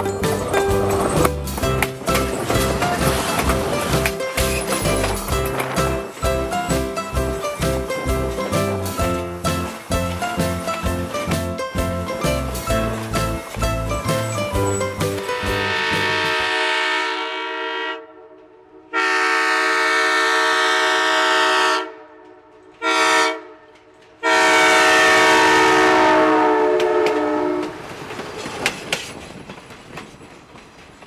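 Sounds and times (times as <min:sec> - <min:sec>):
wheels clattering over rail joints: 0:00.0 - 0:16.5, 0:26.8 - 0:31.0
train air horn blasts: 0:15.2 - 0:27.8.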